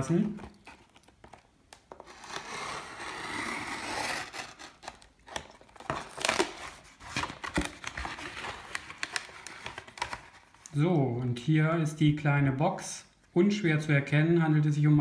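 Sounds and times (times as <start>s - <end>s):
cardboard tearing: 1.9s - 10.4s
knife cutting cardboard: 2.0s - 5.0s
cardboard crackling and tapping: 5.2s - 10.4s.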